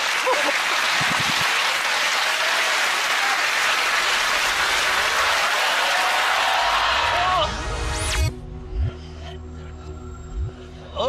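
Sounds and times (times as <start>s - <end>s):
audience applause: 0.0s - 7.4s.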